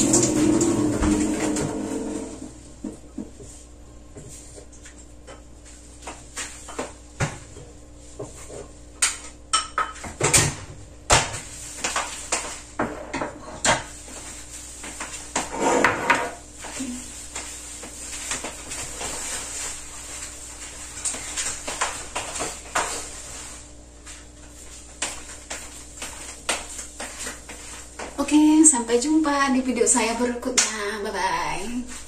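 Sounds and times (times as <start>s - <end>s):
dish scrape: 15.4s - 16.4s.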